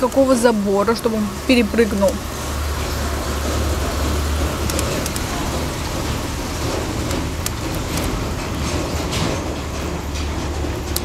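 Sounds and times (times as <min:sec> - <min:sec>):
rushing background noise: 0:00.0 - 0:11.0.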